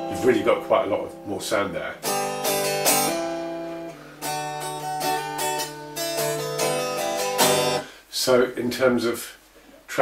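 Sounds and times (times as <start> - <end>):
acoustic guitar strumming: 0.0 - 8.0.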